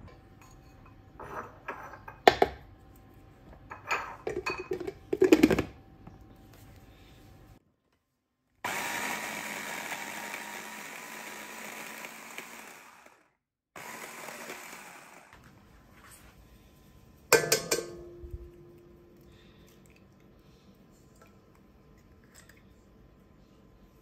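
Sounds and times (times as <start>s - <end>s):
electric food chopper running: 8.7s - 15.4s
egg tapped on metal bowl: 17.3s - 18.3s.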